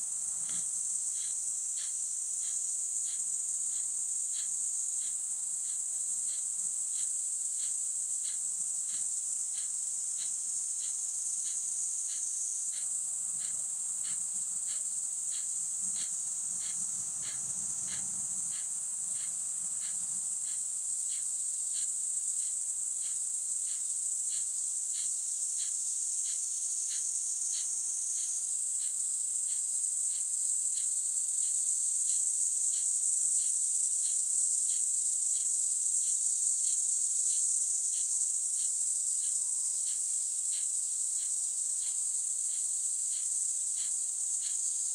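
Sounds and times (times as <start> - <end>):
insect ticking: 0.0 - 44.9
high-pitched insect shrill: 0.4 - 28.9.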